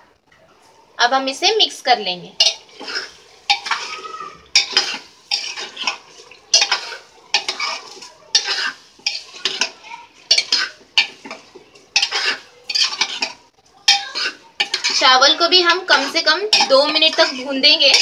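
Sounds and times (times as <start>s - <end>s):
spoon scraping a pot: 2.4s - 18.0s.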